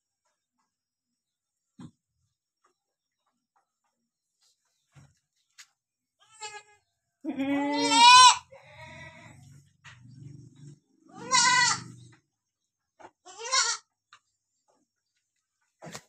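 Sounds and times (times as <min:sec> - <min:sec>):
goat kids bleating: 0:06.2 - 0:09.5, 0:11.1 - 0:12.1, 0:13.2 - 0:13.9.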